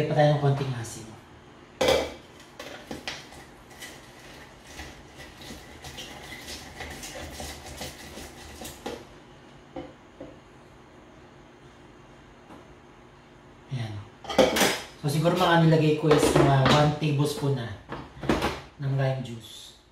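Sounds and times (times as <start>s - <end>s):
lime scraping on hand juicer: 2.8s - 9.0s.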